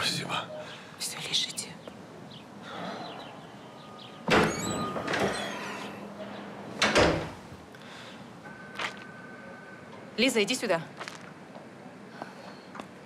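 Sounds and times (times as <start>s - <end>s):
door squeaking: 4.1s - 7.4s.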